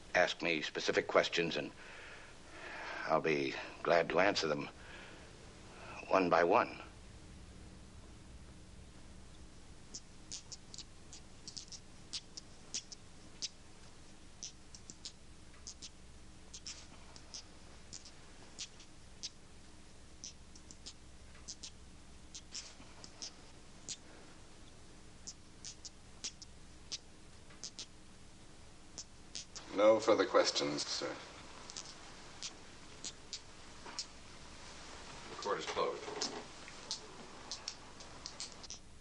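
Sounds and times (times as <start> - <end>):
faint low hum: 0.0 - 39.0
steel balls clicking together: 36.9 - 38.8.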